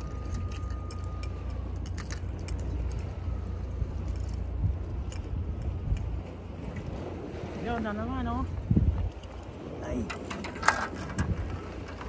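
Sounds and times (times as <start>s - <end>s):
thin high tone: 0.0s - 4.6s
wind on microphone: 0.0s - 12.0s.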